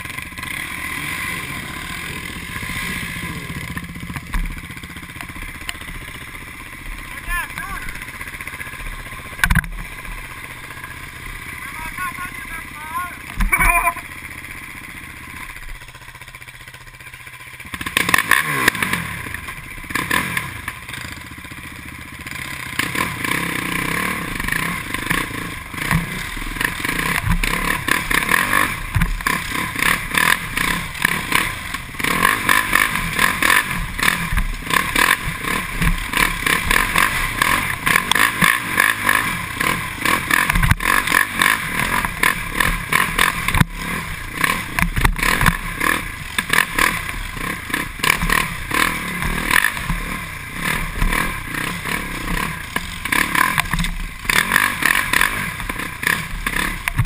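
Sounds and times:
quad engine revving: 0.0 - 57.0.

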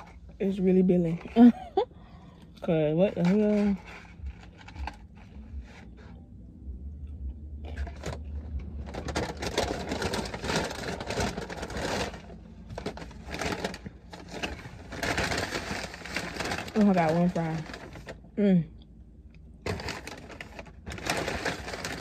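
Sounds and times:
paper bag rustling: 0.0 - 1.5, 3.1 - 6.1, 7.6 - 18.2, 19.6 - 22.0.

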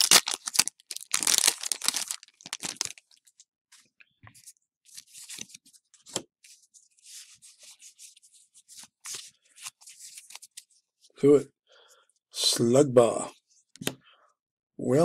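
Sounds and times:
cards rustling and snapping: 0.0 - 3.2
foil wrapper crinkling and tearing: 0.0 - 3.4.

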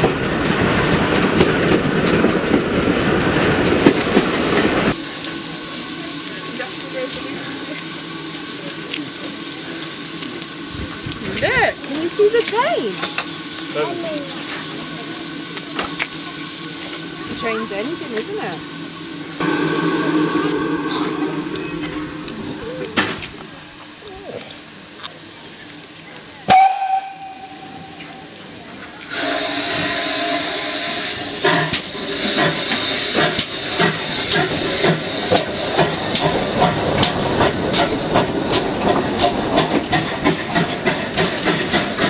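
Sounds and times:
loud steam hiss: 3.3 - 42.0
steam exhaust chuffs: 14.7 - 24.2, 24.8 - 42.0
steam locomotive whistle: 19.4 - 23.4, 26.5 - 28.4, 29.1 - 33.2.

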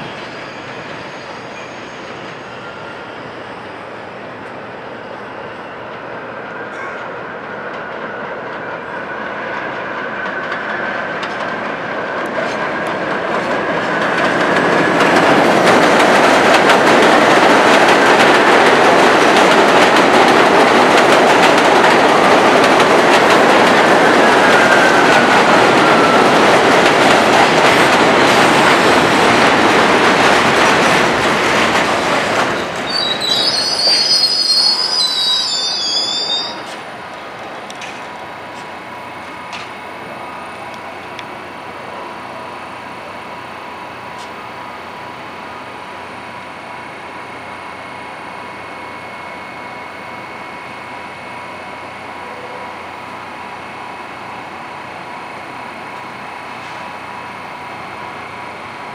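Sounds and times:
train brakes squealing: 0.0 - 5.9, 24.0 - 26.4, 32.5 - 36.9
subway train passing: 0.0 - 58.9.

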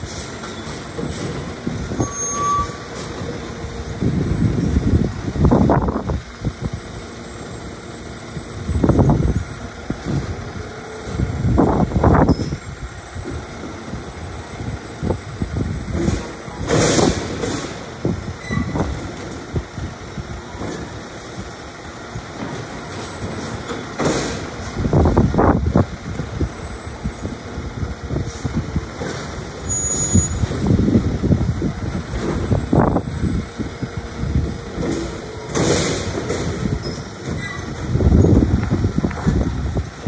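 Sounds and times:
bangs and clatter of carts: 0.0 - 4.8, 9.9 - 10.4, 15.8 - 19.7, 20.5 - 21.4, 22.3 - 26.4, 28.2 - 31.0, 31.8 - 33.1, 34.4 - 40.0
garbage truck engine running: 0.0 - 40.0.

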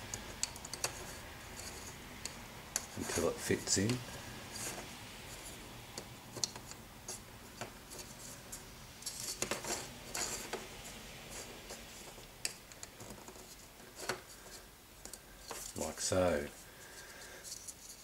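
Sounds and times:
plastic rings clicking and scraping: 0.1 - 4.9, 5.9 - 10.7, 11.3 - 16.0.

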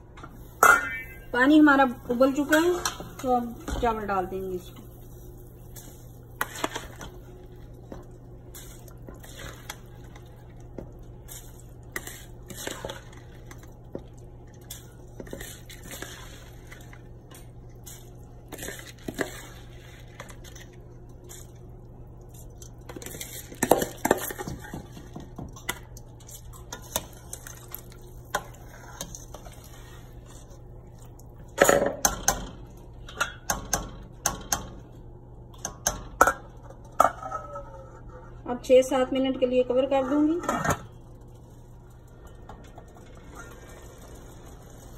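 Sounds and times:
metal spoon scraping a pot: 39.8 - 40.8.

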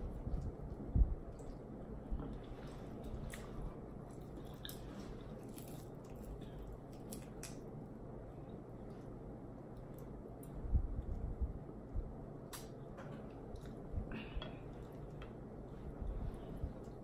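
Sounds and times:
soft wet squishes: 0.0 - 12.7
crispy chicken skin crackling: 4.2 - 7.7.

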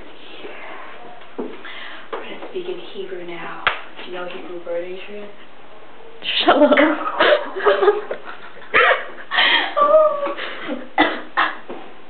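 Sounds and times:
person crying out: 8.8 - 10.4.

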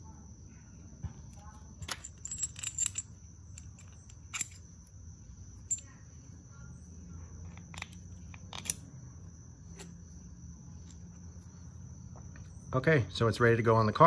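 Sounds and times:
metal parts clicking: 1.8 - 4.7, 7.5 - 8.8.

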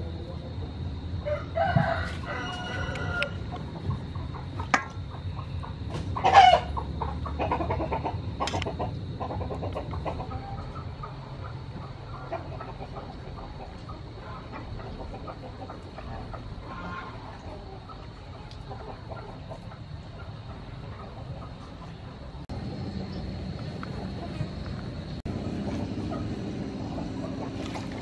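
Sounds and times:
chickens clucking: 0.0 - 28.0
rooster crowing: 1.2 - 3.6, 6.2 - 6.7.

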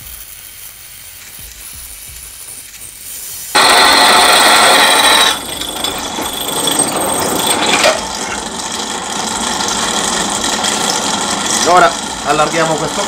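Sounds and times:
drill press running: 3.5 - 13.0
drill press shrill cutting: 3.5 - 13.0.

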